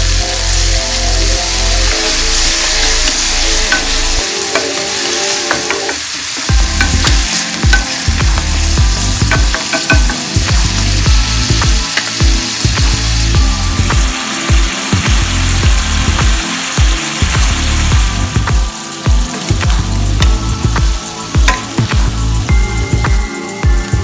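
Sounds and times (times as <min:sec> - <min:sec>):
water sizzling in hot pan: 0:00.0 - 0:24.0
utensil clicking against pan: 0:09.2 - 0:10.7.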